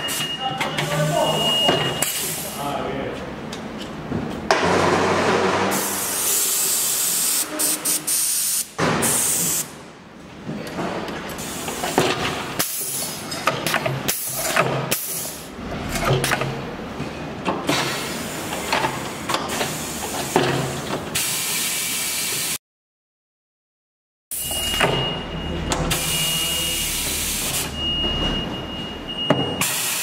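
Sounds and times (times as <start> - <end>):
compressed air hiss: 6.1 - 9.7.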